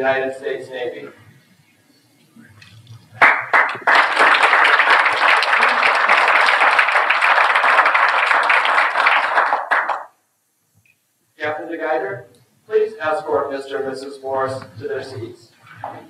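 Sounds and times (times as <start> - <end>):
audience applauding: 3.1 - 10.1.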